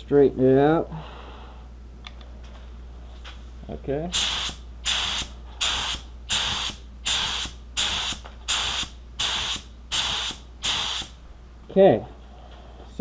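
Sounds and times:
spray gun hissing bursts: 0:04.1 - 0:11.2.

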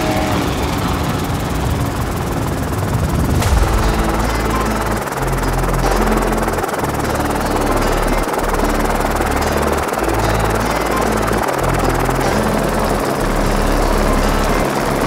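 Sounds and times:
dense rushing sound: 0:03.0 - 0:08.2
music with deep bass line: 0:03.4 - 0:15.0.

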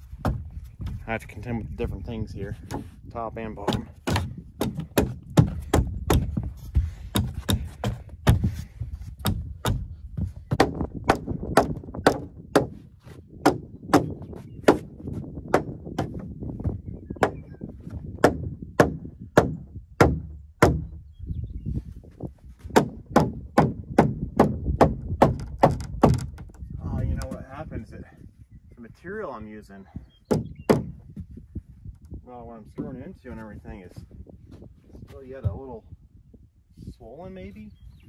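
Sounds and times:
hammer blows on wooden frame: 0:02.5 - 0:21.0, 0:22.6 - 0:27.4, 0:30.2 - 0:31.3.

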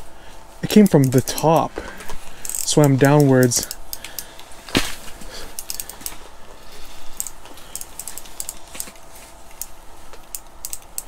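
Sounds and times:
fishing reel clicking: 0:02.4 - 0:04.4, 0:05.6 - 0:06.2, 0:07.1 - 0:08.6, 0:10.2 - 0:11.0.

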